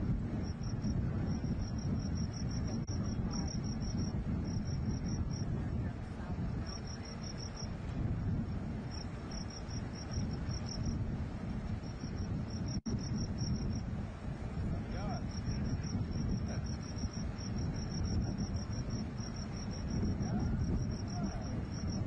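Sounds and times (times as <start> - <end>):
low rumble of burning gas: 0.0 - 22.0
insects chirping: 0.1 - 22.0.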